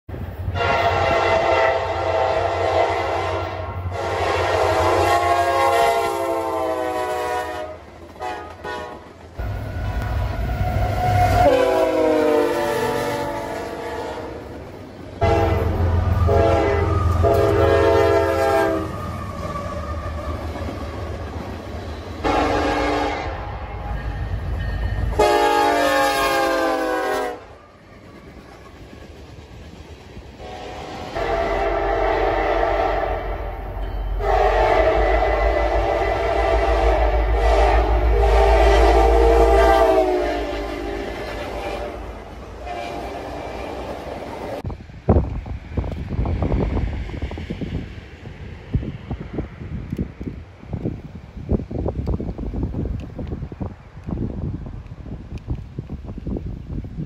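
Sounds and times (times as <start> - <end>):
train rumbling: 0.1 - 57.0
locomotive air horn blasts: 0.5 - 14.5, 15.2 - 20.4, 22.2 - 24.4, 25.0 - 27.7, 30.4 - 43.8.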